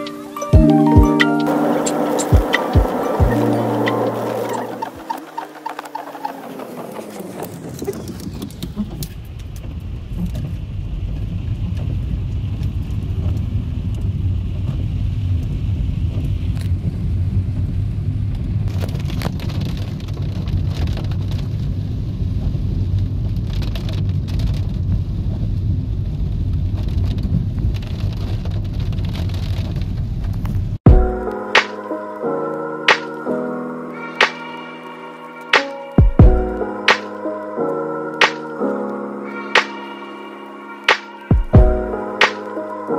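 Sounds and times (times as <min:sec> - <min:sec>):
rain hitting windscreen: 0:01.0 - 0:30.8
car engine and tyre rumble: 0:01.4 - 0:31.2.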